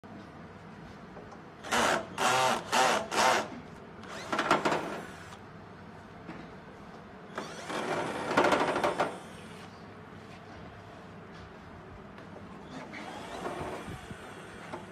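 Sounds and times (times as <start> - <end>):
electric screwdriver whirring: 1.6 - 5.4.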